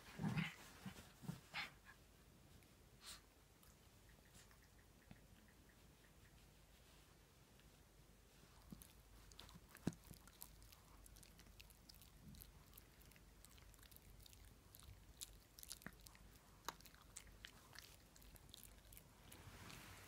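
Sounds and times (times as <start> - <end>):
dog chewing: 8.5 - 19.9.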